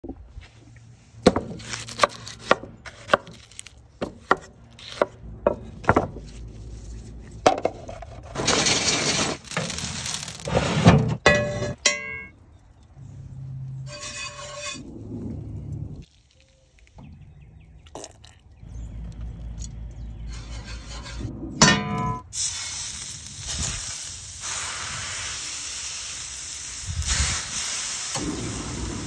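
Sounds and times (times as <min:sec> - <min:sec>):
steady hiss: 0:22.4 - 0:29.0.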